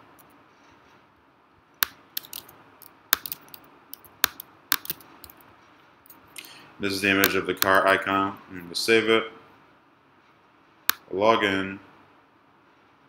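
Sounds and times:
keyboard keys clicking: 0:02.2 - 0:02.5, 0:03.1 - 0:05.4.

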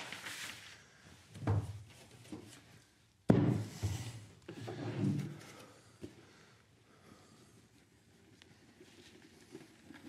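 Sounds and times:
knocks on a workbench: 0:03.3 - 0:03.8.

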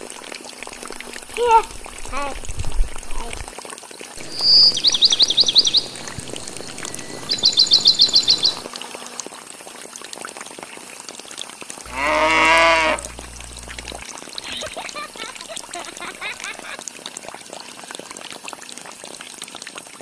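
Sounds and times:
water trickling: 0:00.0 - 0:20.0
high bird trills: 0:04.2 - 0:08.7
bleat-like farm animal call: 0:11.9 - 0:13.2.

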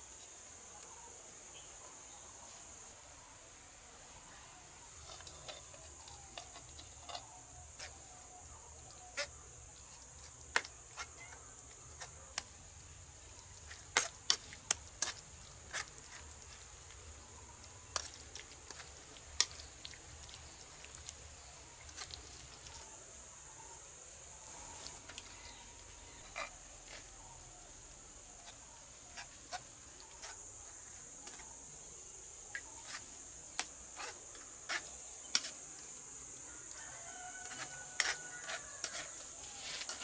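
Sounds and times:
high insect drone: 0:22.7 - 0:40.0.

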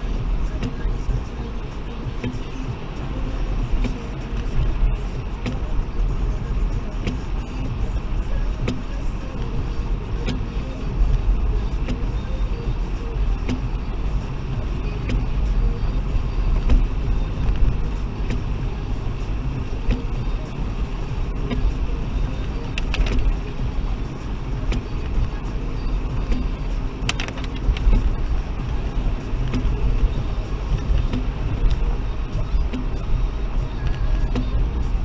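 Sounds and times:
engine and tyre rumble: 0:00.0 - 0:35.0
sharp clicks: 0:22.7 - 0:23.6, 0:26.2 - 0:28.2.

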